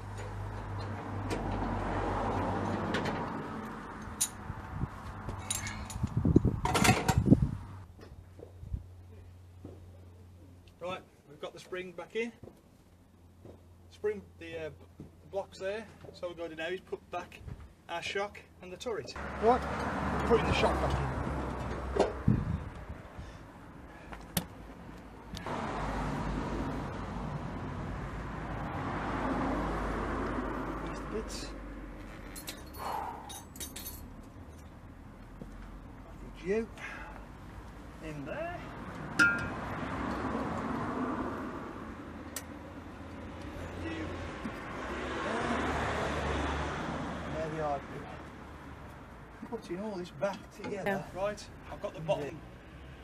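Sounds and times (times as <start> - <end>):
low rumble of vehicle noise: 0.0 - 53.0
tools clinking on metal: 5.4 - 6.1, 32.2 - 34.6, 39.2 - 39.5.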